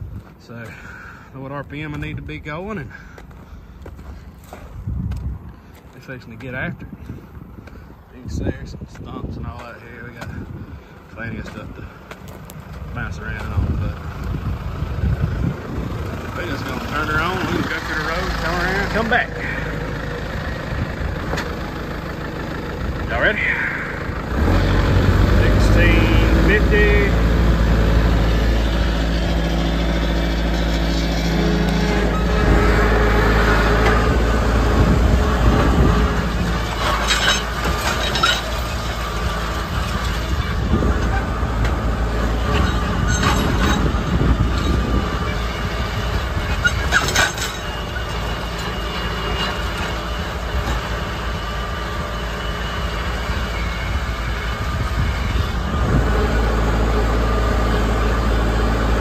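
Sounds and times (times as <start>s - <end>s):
tractor engine running: 0.0s - 59.0s
seed drill rattling and clanking: 16.2s - 24.7s, 33.5s - 53.4s.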